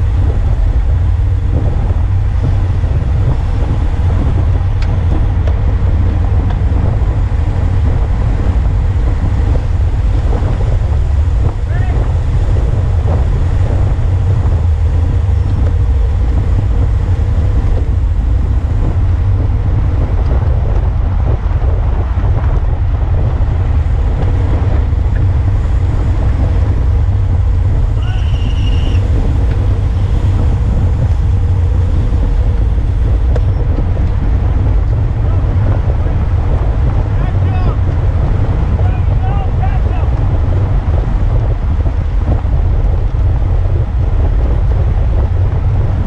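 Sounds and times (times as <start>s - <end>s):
wind buffeting microphone: 0.0s - 46.0s
tyres hissing on asphalt: 23.1s - 37.9s.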